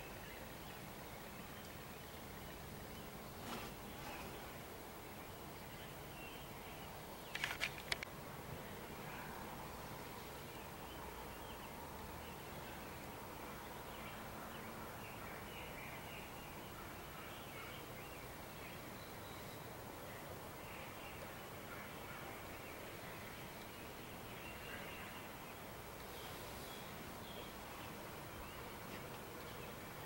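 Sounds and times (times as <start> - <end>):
distant bird chirps: 5.2 - 8.1
sharp clicks: 7.2 - 8.1.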